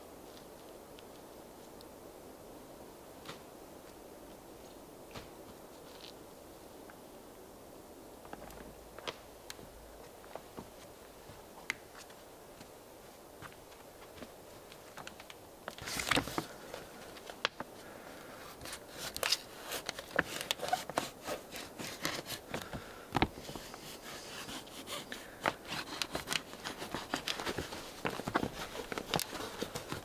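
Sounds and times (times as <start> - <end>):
plastic sheeting crinkling: 14.8 - 30.0.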